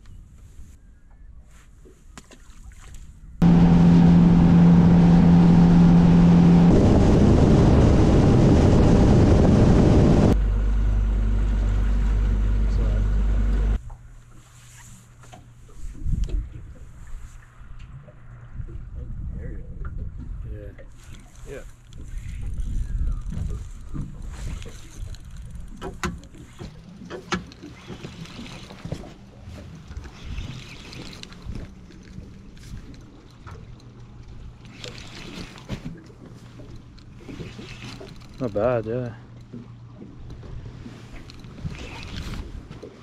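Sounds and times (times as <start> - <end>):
wind rumble on microphone: 3.2 - 10.4, 15.8 - 21.2, 21.9 - 25.8
wind rushing over microphone: 3.4 - 10.4
motorboat engine drone: 3.4 - 19.3, 21.9 - 43.0
body movement rumble: 18.7 - 39.3.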